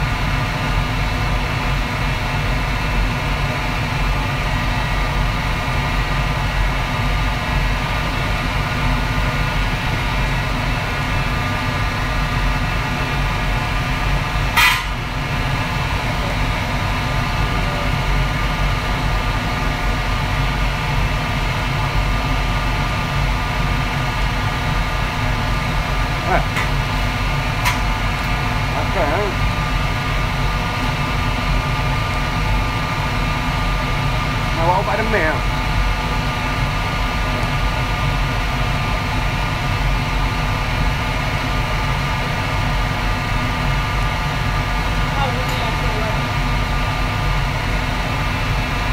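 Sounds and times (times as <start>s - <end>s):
constant hum: 0.0s - 48.9s
wok burner and fans roaring: 0.0s - 48.9s.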